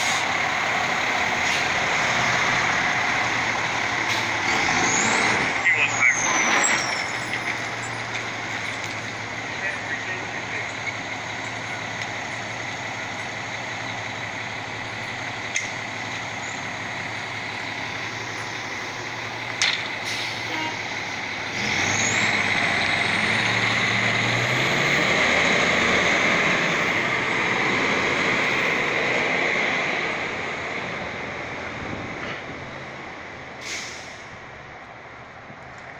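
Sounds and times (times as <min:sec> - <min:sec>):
truck engine revving: 0:00.0 - 0:34.4
diesel engine idling: 0:00.0 - 0:35.6
air brakes releasing: 0:20.0 - 0:20.6, 0:33.6 - 0:34.4.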